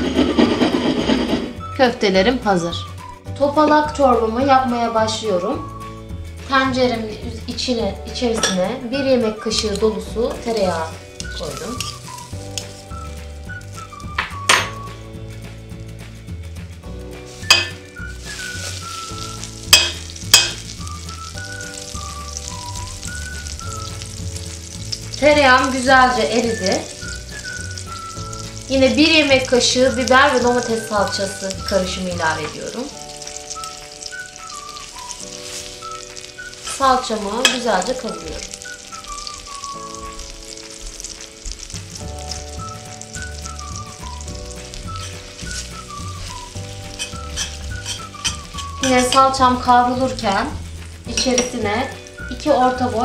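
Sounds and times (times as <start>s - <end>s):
butter sizzling in pot: 0.0s - 53.0s
soft background music: 0.0s - 53.0s
metal spoon clinking pot: 8.4s - 8.7s, 17.5s - 17.8s, 19.7s - 20.8s, 46.9s - 49.4s.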